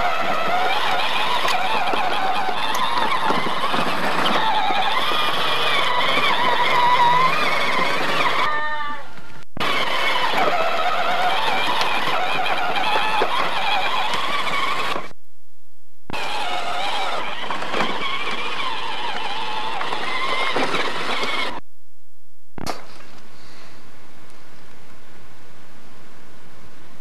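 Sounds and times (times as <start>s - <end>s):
toy truck electric motor whining: 0.0s - 15.1s, 16.1s - 21.6s.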